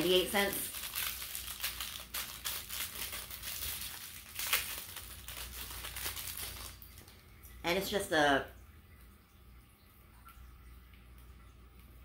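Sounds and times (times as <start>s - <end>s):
plastic packaging crinkling: 0.0s - 7.4s.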